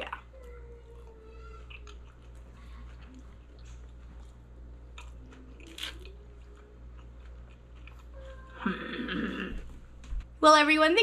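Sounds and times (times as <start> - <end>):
low steady hum: 0.0 - 11.0
person chewing food: 0.8 - 8.7.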